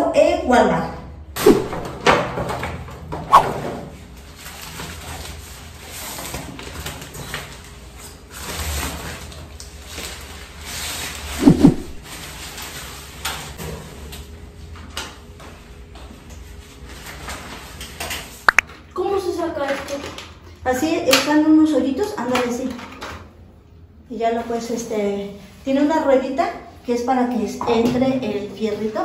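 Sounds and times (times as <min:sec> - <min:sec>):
shower curtain rustling: 0:04.3 - 0:13.6.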